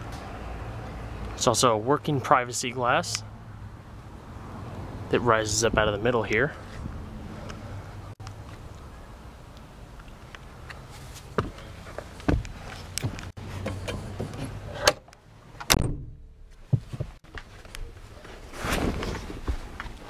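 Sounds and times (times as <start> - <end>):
car door knocks and clunks: 12.3 - 13.2, 15.7 - 17.2.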